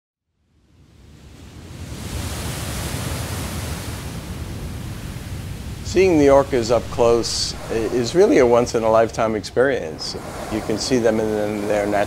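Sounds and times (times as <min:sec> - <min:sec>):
rushing wind-like noise: 0:01.0 - 0:12.0
deep rumble: 0:05.9 - 0:11.7.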